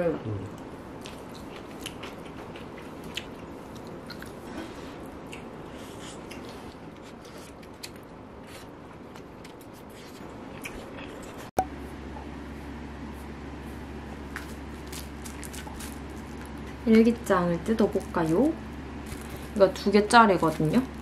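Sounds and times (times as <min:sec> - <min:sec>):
person chewing food: 0:00.5 - 0:11.6, 0:14.3 - 0:16.8, 0:19.0 - 0:19.6.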